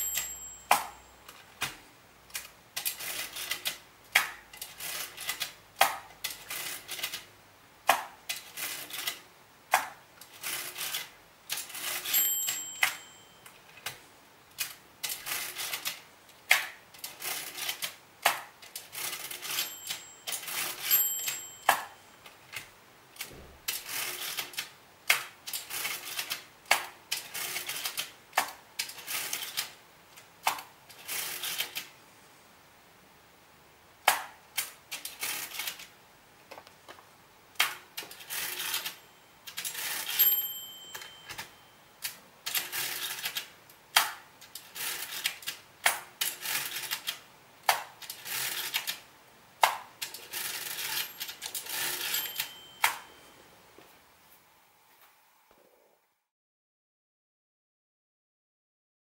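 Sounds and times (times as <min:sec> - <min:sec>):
mechanical calculator gear clicks: 0:37.6 - 0:49.0.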